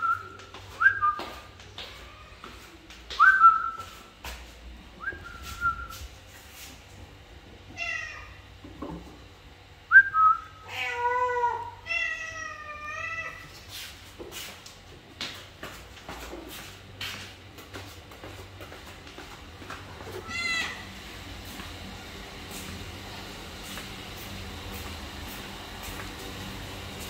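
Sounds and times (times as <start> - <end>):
person whistling: 5.0 - 6.0, 9.9 - 10.5
cat meowing: 10.7 - 13.4, 20.2 - 20.9.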